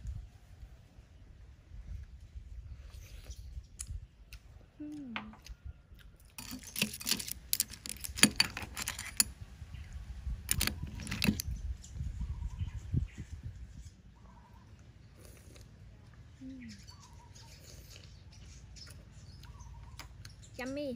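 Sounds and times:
person humming mm: 0:04.8 - 0:05.6, 0:16.4 - 0:16.8
clam shells clicking: 0:06.4 - 0:09.3, 0:10.5 - 0:11.4.

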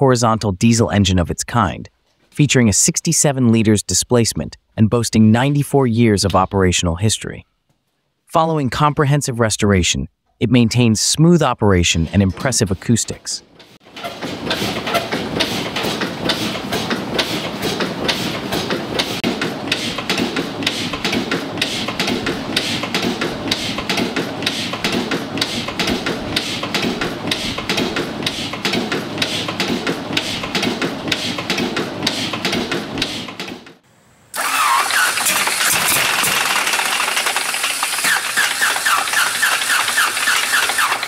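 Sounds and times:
diesel engine clattering: 0:13.6 - 0:33.7, 0:34.4 - 0:41.0
radial aircraft engine running: 0:14.0 - 0:33.2, 0:34.4 - 0:41.0.

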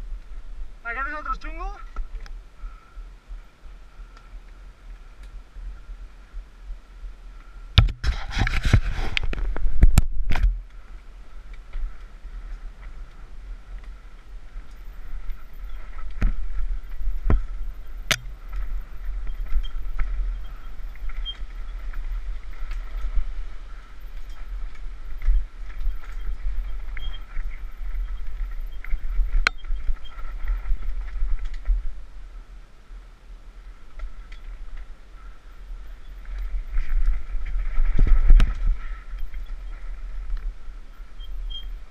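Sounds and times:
tyre and trail noise: 0:00.0 - 0:41.9
bike clattering over rough ground: 0:07.8 - 0:32.0.

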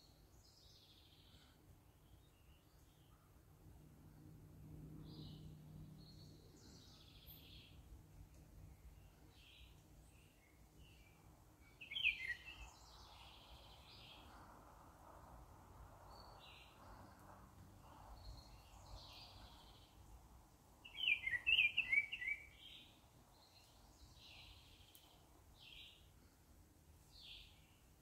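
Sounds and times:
birds chirping: 0:08.8 - 0:14.3, 0:20.8 - 0:26.1.

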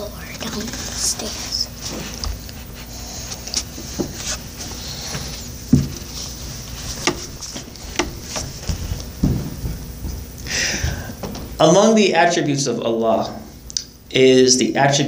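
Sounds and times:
handling noise knocks and rustles: 0:03.4 - 0:11.6.

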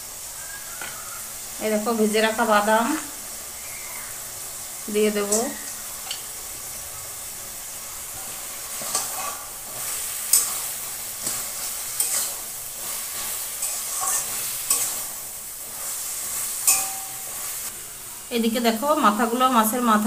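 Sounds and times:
food sizzling in a metal pan: 0:00.0 - 0:20.0
metal spatula scraping a pan: 0:08.1 - 0:17.7.

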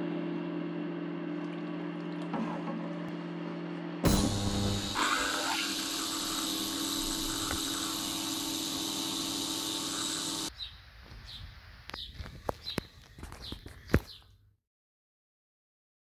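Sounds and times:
ultrasonic cleaner buzzing hiss: 0:04.0 - 0:10.5.

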